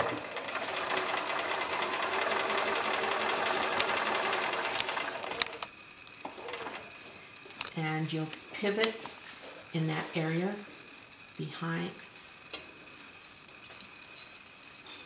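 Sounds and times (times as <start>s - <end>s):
electric sewing machine stitching: 0.0s - 5.7s, 6.3s - 6.9s.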